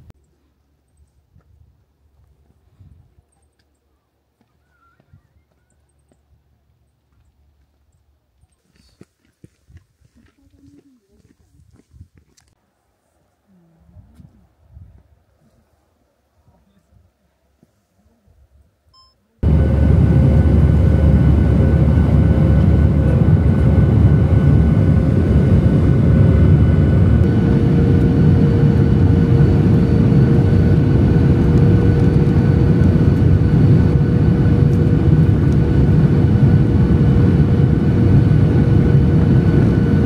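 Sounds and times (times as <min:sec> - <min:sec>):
jet engines and airflow rumble: 0:19.4 - 0:40.0.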